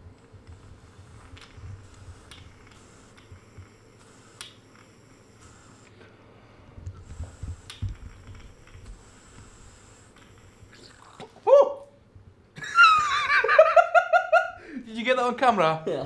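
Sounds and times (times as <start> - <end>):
sharp clicks of carburettors: 1.2 - 5.0, 7.0 - 10.8.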